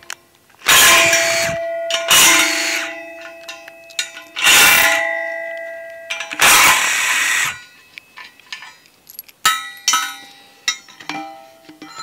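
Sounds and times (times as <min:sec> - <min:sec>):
power driver running: 0:00.7 - 0:02.9, 0:04.4 - 0:05.0, 0:06.1 - 0:07.6
steel pipe ringing: 0:00.7 - 0:12.0.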